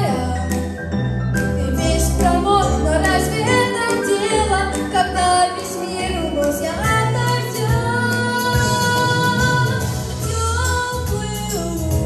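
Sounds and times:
instrumental backing track: 0.0 - 12.0.

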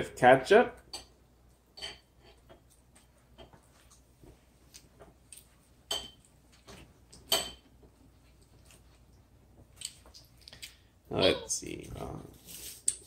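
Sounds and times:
tableware clinking on plate: 1.8 - 2.5, 5.9 - 6.3, 7.3 - 7.7.

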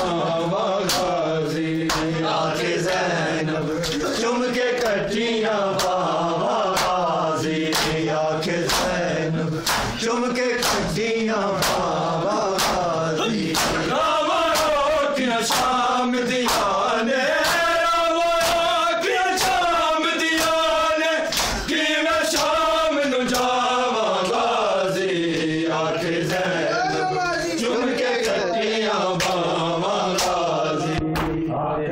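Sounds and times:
men chanting a lament: 0.0 - 31.9
hands slapping on chests: 0.8 - 1.2, 1.8 - 2.1, 5.8 - 6.0, 6.7 - 7.0, 7.7 - 8.0, 8.6 - 9.0, 9.6 - 10.0, 10.6 - 10.9, 11.6 - 11.9, 12.5 - 12.9, 13.5 - 13.9, 14.5 - 14.8, 15.4 - 15.8, 16.4 - 16.8, 17.4 - 17.7, 18.4 - 18.7, 20.4 - 20.6, 21.3 - 21.7, 22.3 - 22.6, 23.3 - 23.6, 29.2 - 29.5, 30.1 - 30.4.

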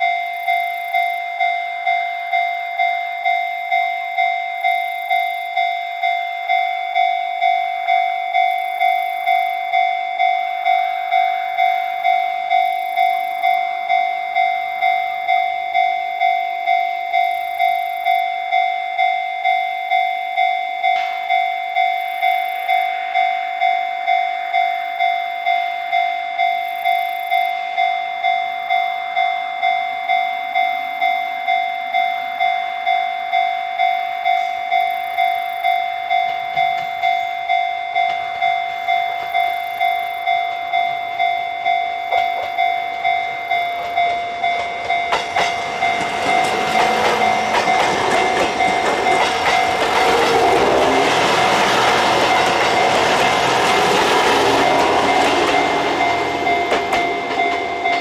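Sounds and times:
diesel railcar running: 34.3 - 58.0
level crossing electronic bell: 42.6 - 58.0.

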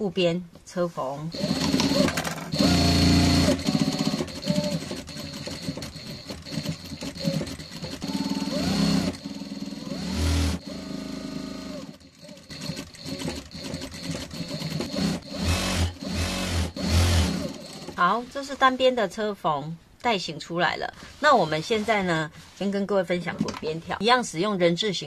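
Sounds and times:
electric sewing machine stitching: 1.3 - 18.1.

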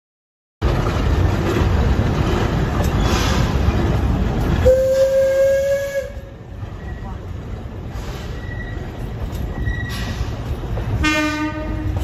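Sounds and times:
steam train running: 0.6 - 12.0
steam whistle blast: 4.6 - 6.2.

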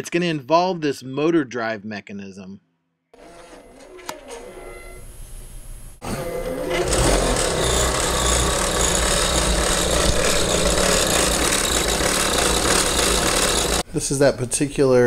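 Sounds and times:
rough mechanical motor noise: 6.0 - 13.8.

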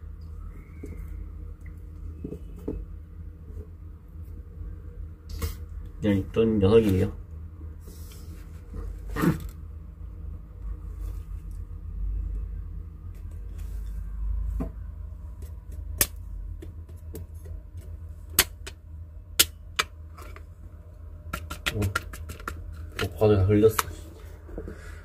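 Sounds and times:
tortoise claws tapping on plastic: 21.3 - 23.2.

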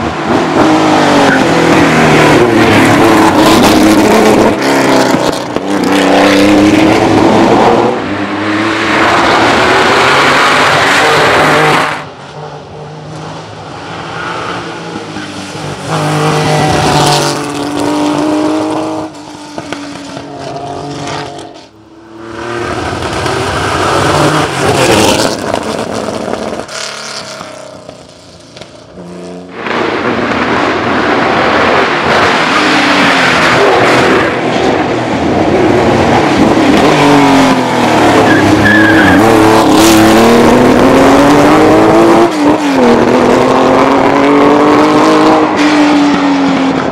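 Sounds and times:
racing car engine revving: 0.0 - 28.1, 28.9 - 46.9.

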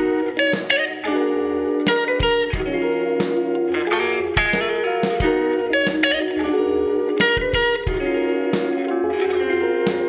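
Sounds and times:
guitar instrumental with beat: 0.0 - 10.0.

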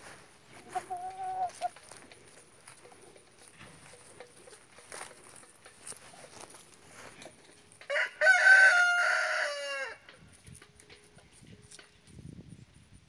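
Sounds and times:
rooster crowing: 7.9 - 10.0.

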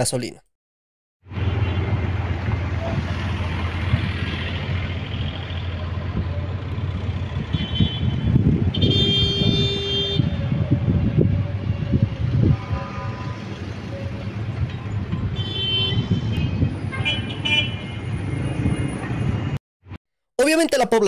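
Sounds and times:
vehicle horn: 1.4 - 2.0, 7.4 - 10.6, 12.4 - 13.6, 15.3 - 18.1
vehicle engines idling: 2.5 - 8.3.

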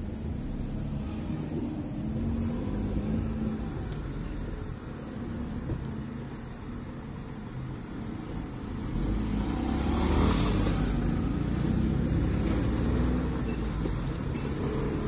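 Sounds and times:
car engine: 0.0 - 15.0
road noise inside car: 0.0 - 15.0.

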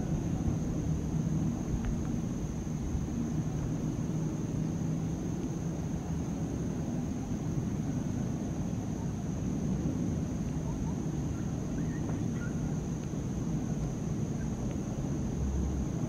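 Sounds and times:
faint chirps: 10.6 - 12.8.

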